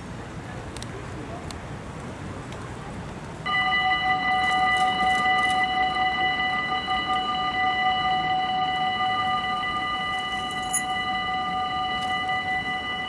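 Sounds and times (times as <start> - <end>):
level crossing warning bell: 3.4 - 13.0.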